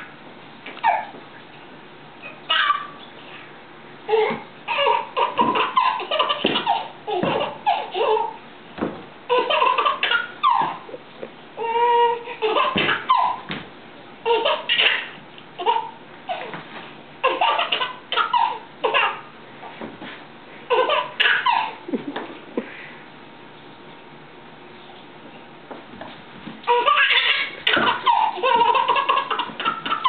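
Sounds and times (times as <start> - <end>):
baby laughing: 0.8 - 1.1, 2.2 - 3.0, 4.1 - 8.4, 9.3 - 11.0, 11.6 - 13.5, 14.2 - 16.6, 17.2 - 19.3, 20.7 - 22.4, 26.7 - 30.0
baby squealing: 0.8 - 1.1, 2.2 - 3.0, 26.7 - 30.0.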